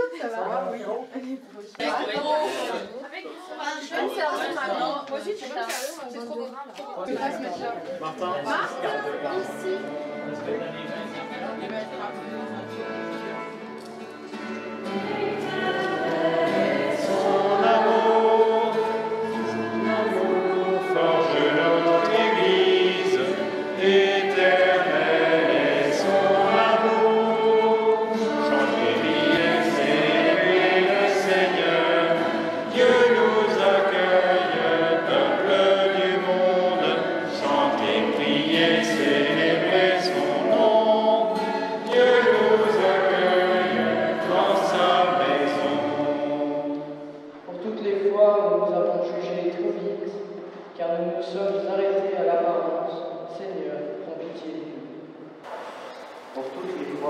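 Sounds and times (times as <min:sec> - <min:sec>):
guitar: 0:07.3 - 0:47.5
congregation singing a hymn: 0:08.2 - 0:11.4, 0:14.3 - 0:49.4, 0:54.8 - 0:57.0
violin: 0:08.5 - 0:47.0.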